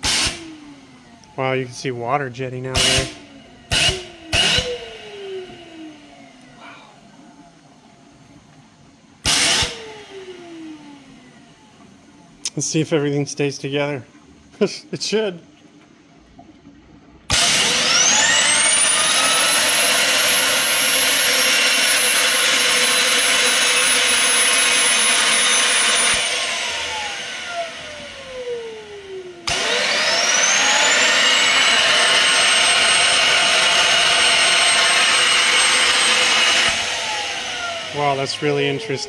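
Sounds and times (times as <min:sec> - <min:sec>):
high turbine whine: 0:17.8 - 0:39.0.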